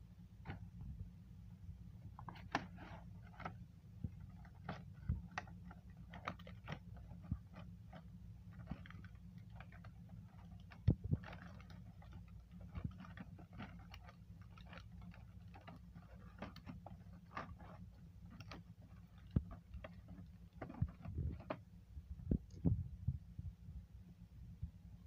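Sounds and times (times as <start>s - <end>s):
low hum: 0.0s - 25.0s
plastic tray crinkling: 2.1s - 21.7s.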